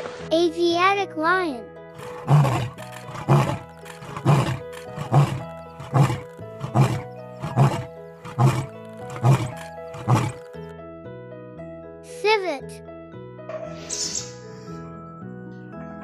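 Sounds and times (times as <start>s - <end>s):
background music: 0.0s - 16.0s
lion roaring in deep grunts: 2.0s - 10.5s.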